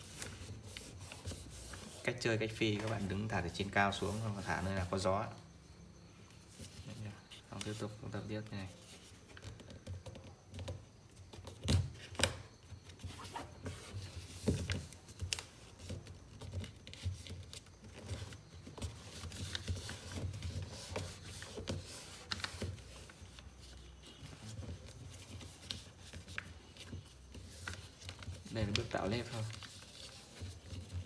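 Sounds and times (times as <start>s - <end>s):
paper rustling: 0.0s - 5.1s, 11.4s - 31.0s.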